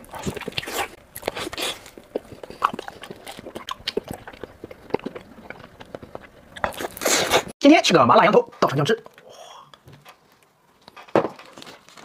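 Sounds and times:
wet chewing and lip smacking: 0.0s - 7.5s.

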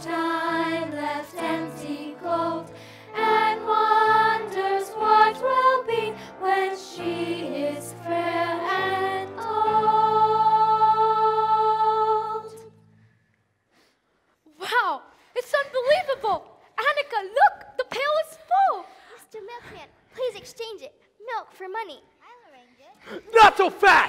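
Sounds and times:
children's chorus singing: 0.0s - 12.7s.

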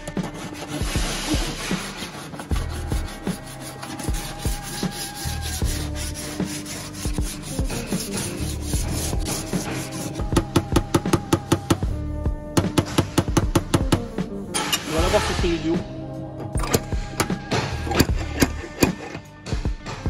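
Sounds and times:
file scraping sheet metal: 0.0s - 11.6s, 14.5s - 15.8s, 16.4s - 19.3s.

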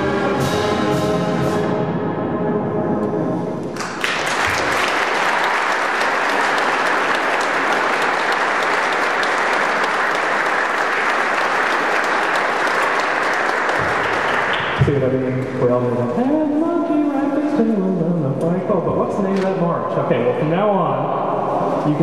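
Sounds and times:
audience applause: 3.7s - 15.2s.

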